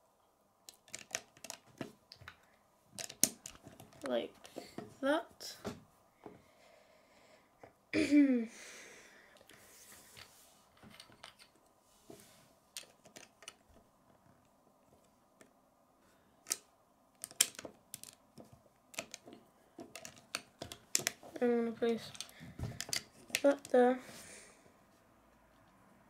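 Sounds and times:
plastic bricks clicking: 0.7 - 4.6, 10.9 - 11.6, 12.7 - 13.8, 16.4 - 23.8.

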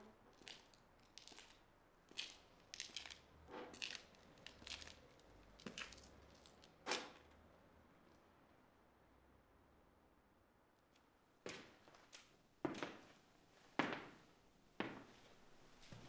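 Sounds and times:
footsteps scuffing on hard floor: 14.8 - 15.2.

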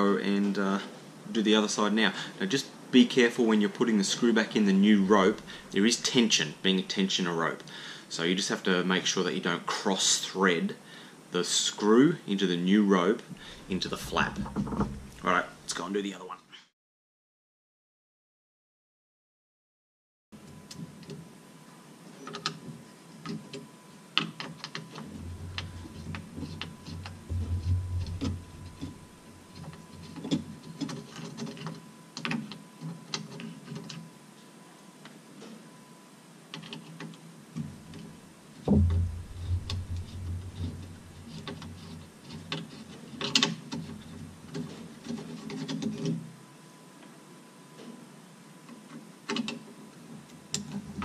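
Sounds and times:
low rumbling knocks: 13.5 - 15.3, 25.2 - 29.5, 38.7 - 41.8
clicks and rattles of a mechanism: 14.2 - 15.2, 29.6 - 34.1, 36.5 - 37.2, 40.6 - 46.2, 48.9 - 49.7.

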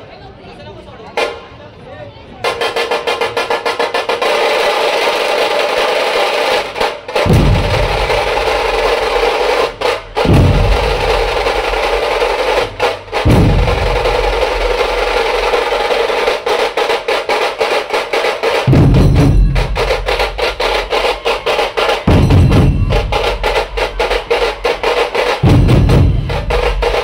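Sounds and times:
drum ensemble playing: 2.4 - 27.0
rapid snare drum rolls: 2.4 - 27.0
heavy bass drum strokes: 7.1 - 17.7, 18.4 - 27.0.

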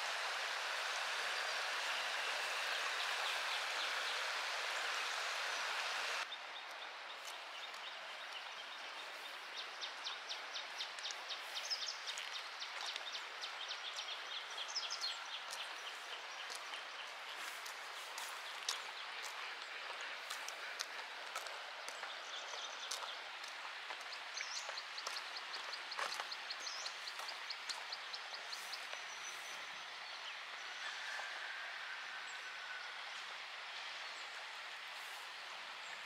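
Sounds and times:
rain hissing: 0.0 - 6.3.

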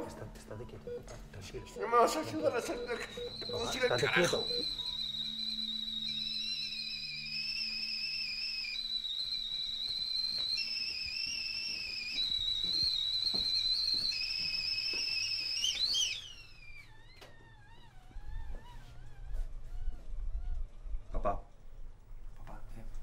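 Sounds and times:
whistling kettle: 2.3 - 17.9.

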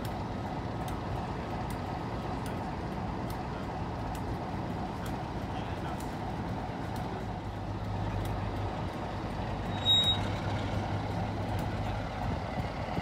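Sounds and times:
diesel locomotive engine idling: 0.0 - 13.0
short high-pitched whistle: 9.7 - 10.3.

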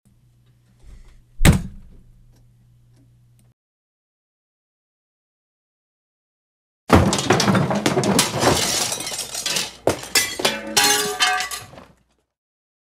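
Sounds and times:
glass breaking: 6.9 - 11.8.

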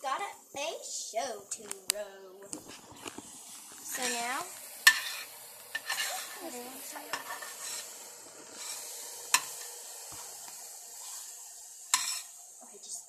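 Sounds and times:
eggs sizzling in a frying pan: 0.0 - 13.0
spatula scraping a pan: 2.6 - 10.4, 11.0 - 12.4
spatula clinking against pan: 11.9 - 12.3.

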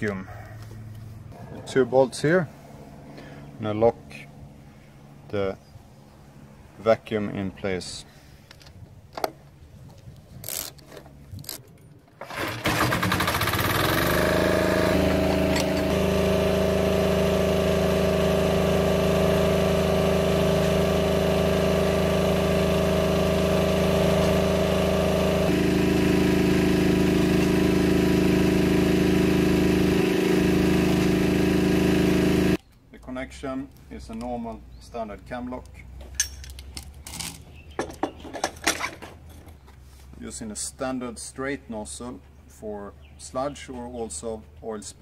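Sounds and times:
diesel engine running: 0.6 - 8.6, 12.2 - 32.6
ratchet wrench clicks: 10.4 - 11.6.

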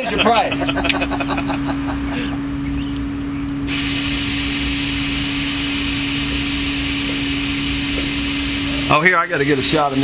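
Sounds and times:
steady machine hum: 0.0 - 10.0
water spraying from shower head: 3.7 - 9.0.

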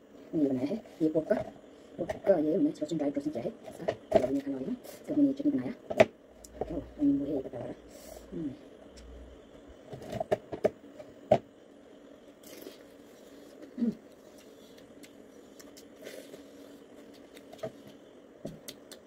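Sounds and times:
faint steady hum: 0.0 - 19.0
chewing food: 12.4 - 17.9.

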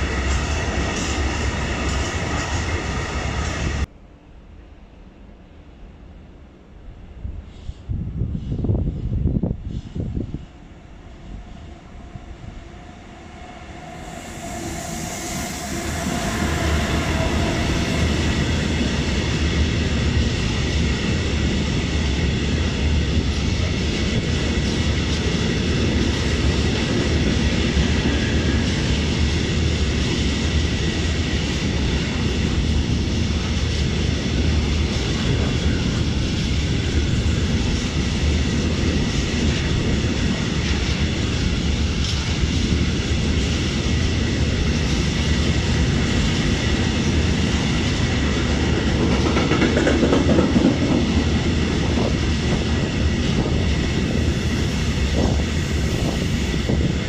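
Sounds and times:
wheels rumbling on rail: 0.0 - 4.0, 7.2 - 57.0
freight train rolling past: 0.0 - 57.0.

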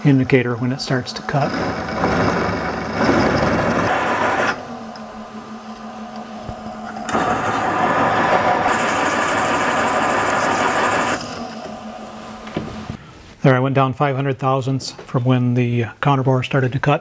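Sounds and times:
milling cutter cutting metal: 0.0 - 13.0
spindle hum: 0.0 - 13.1.

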